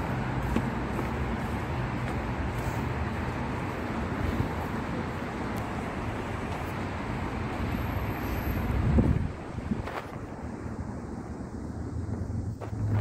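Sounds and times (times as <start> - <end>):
road traffic rumble: 0.0 - 13.0.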